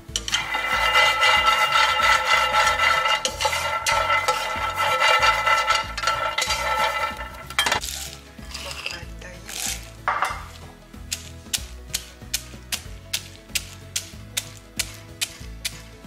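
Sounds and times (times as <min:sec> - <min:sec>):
spatula scraping peanuts in pan: 0:00.0 - 0:16.0
music with held notes: 0:07.3 - 0:16.0.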